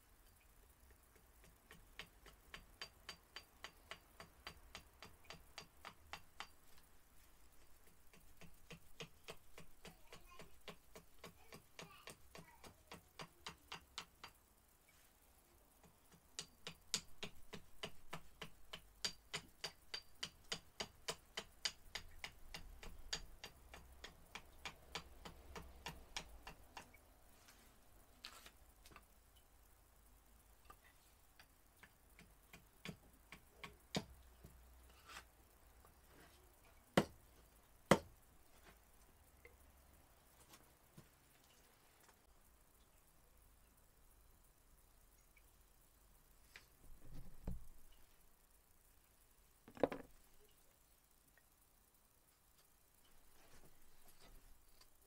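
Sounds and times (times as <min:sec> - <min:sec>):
axe chopping wood: 0:37.0 - 0:37.2.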